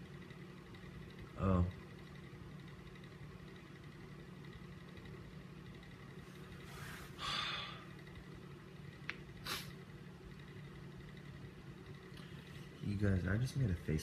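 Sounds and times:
low room hum: 0.0 - 14.0
person exhaling breathily: 7.2 - 7.8.

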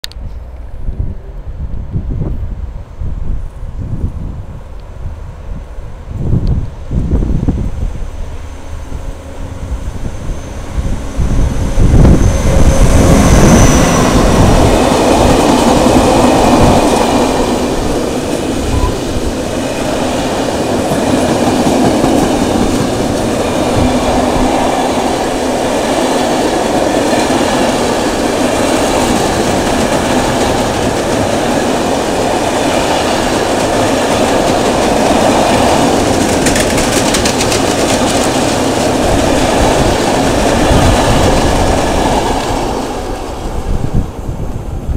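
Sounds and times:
diesel locomotive passing: 0.2 - 44.9
freight train rolling past: 0.2 - 44.9
high squeal: 7.8 - 15.1, 18.4 - 20.6
wheels clicking over rail joints: 26.5 - 42.6.

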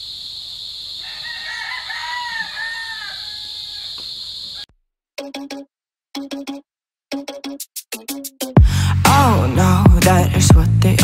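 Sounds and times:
rooster crowing: 0.9 - 4.7.

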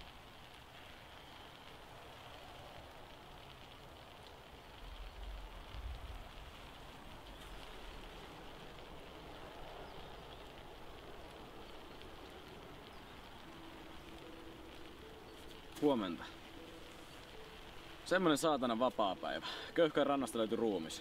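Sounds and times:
steady hiss of ambient noise: 0.0 - 21.0.

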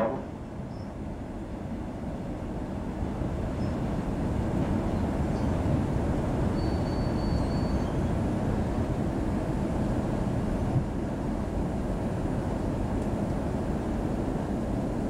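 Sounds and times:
train wheels rumbling: 0.0 - 0.7.

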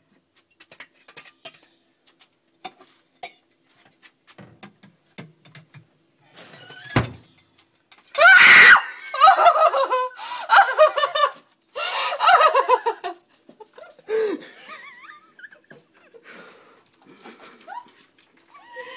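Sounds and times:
young woman screaming: 8.2 - 9.4
woman shrieking laughter: 8.2 - 13.2, 13.8 - 16.2, 17.4 - 18.9.

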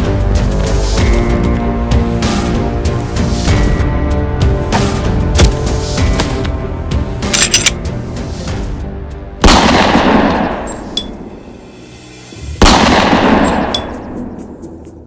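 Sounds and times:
soundtrack music: 0.0 - 15.0
handgun shots echoing: 9.4 - 11.3, 12.6 - 14.3.

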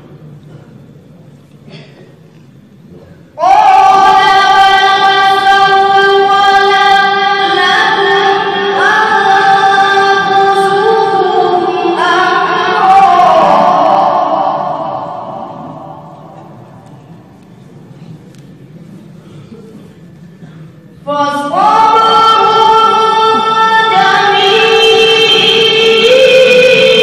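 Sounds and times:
person chanting melodic recitation: 3.4 - 17.4, 21.1 - 27.0.

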